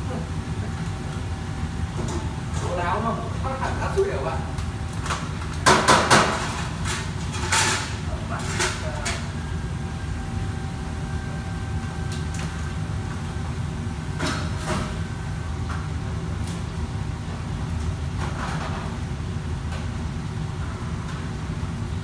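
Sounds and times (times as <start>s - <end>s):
wok range and exhaust hood rumble: 0.0s - 22.0s
faint steady whine: 8.0s - 17.8s.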